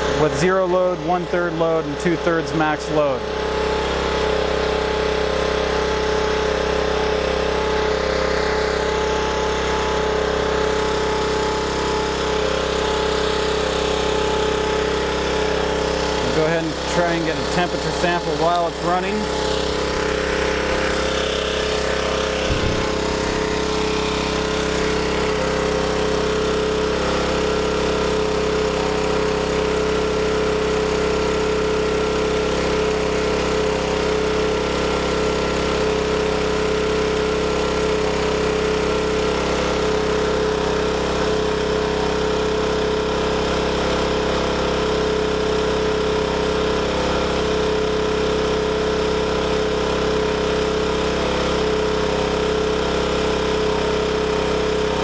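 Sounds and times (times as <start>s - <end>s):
generator engine running: 0.0s - 55.0s.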